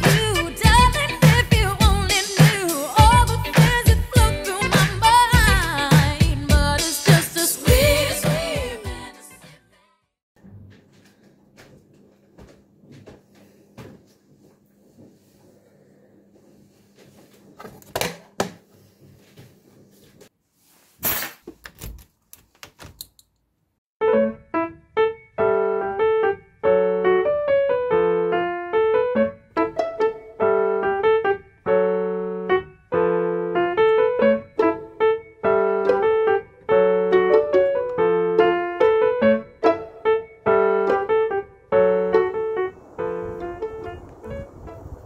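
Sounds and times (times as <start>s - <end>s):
slow piano melody: 24.0s - 45.0s.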